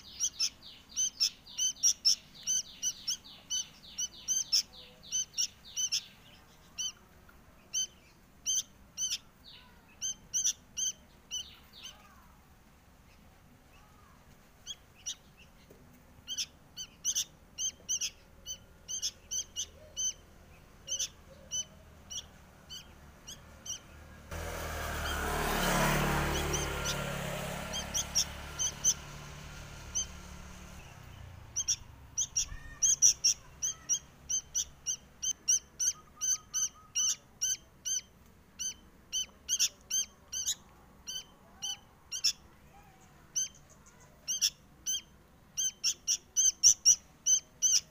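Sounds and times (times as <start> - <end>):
fledgling bird begging calls: 0.0 - 12.3, 16.2 - 24.1, 24.9 - 42.5, 43.1 - 47.9.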